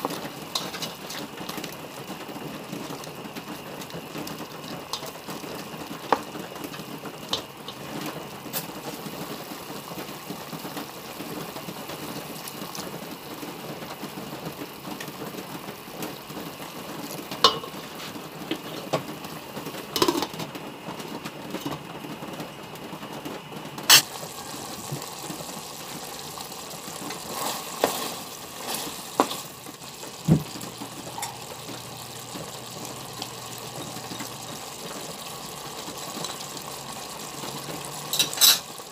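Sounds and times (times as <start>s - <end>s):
meat sizzling in a pot: 0.0s - 38.9s
spoon knocking against pot: 17.4s - 17.8s.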